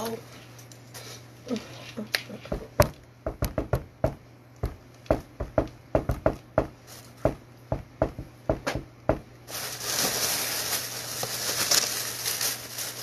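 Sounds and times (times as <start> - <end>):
hands beating on tabletop: 2.5 - 9.3.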